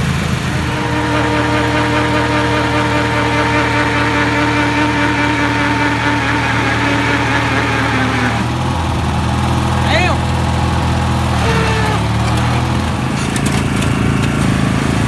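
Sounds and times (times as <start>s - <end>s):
riding lawn mower engine: 0.0s - 15.0s.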